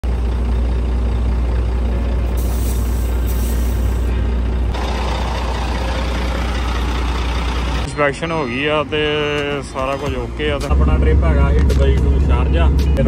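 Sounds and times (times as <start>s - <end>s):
diesel engine idling: 0.0s - 13.0s
compressed air hiss: 2.4s - 4.1s.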